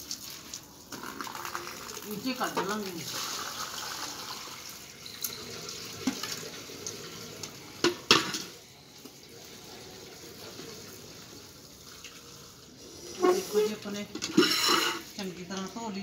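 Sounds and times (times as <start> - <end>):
water poured from a bucket: 0.0 - 7.8
water splashing in a bowl: 0.0 - 12.6.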